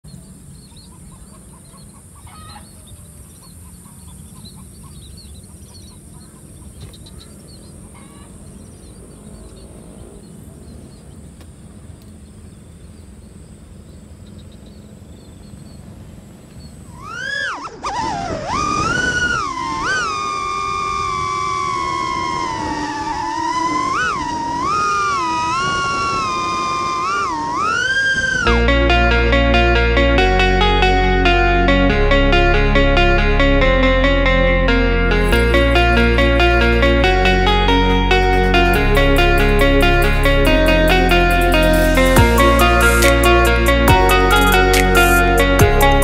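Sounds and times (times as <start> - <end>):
bird calls: 0.0 - 28.5
drone motors whining: 15.2 - 46.0
low outdoor rumble: 20.4 - 46.0.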